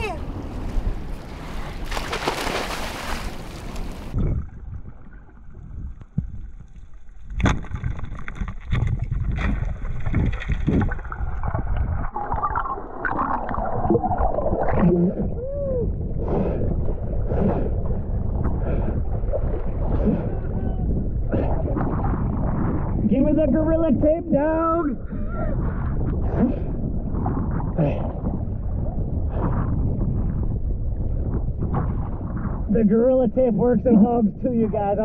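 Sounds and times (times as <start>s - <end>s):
water splashing: 0.0s - 15.3s
wind: 0.0s - 35.0s
underwater gurgling and bubbles: 3.6s - 23.8s, 24.9s - 32.9s.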